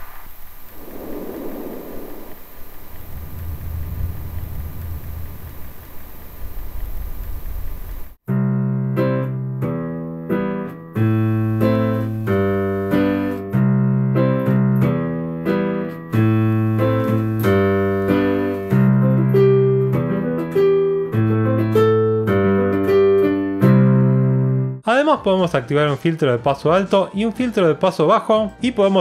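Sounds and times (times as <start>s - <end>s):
steady hiss: 0.0s - 8.2s, 11.2s - 13.5s, 16.2s - 19.0s
piano playing chords: 8.3s - 24.8s.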